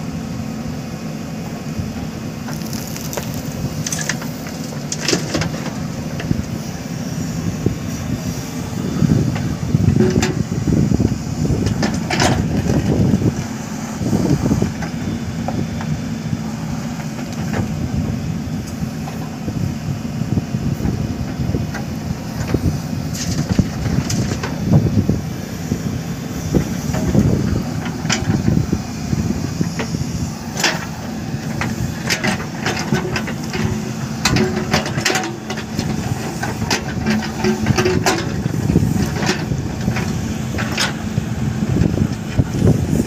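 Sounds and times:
diesel engine under load: 0.0 - 43.0.

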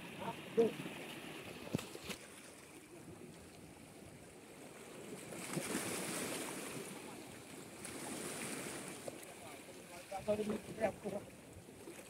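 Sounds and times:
sea water washing against rocks: 4.8 - 11.2.

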